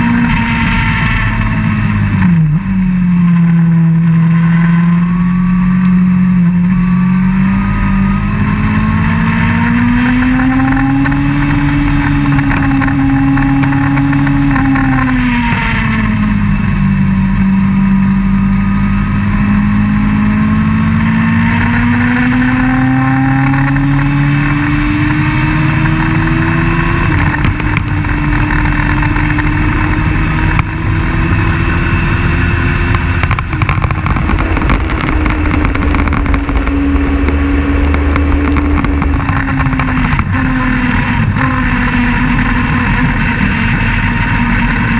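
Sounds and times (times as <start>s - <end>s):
race car engine revving: 0.0s - 44.9s.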